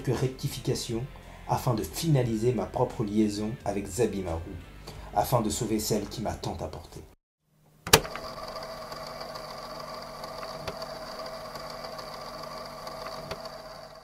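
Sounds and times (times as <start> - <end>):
sharp click: 7.8 - 8.2
film projector whirring: 7.9 - 14.0.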